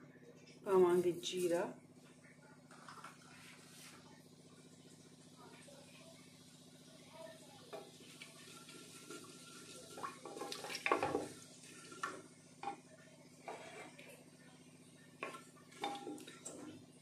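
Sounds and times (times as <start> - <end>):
wooden spatula scraping a pot: 13.4 - 14.1.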